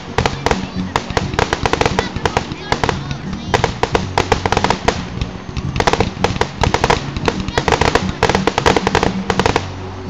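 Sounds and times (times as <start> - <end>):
fireworks bursting and crackling: 0.0 - 10.0.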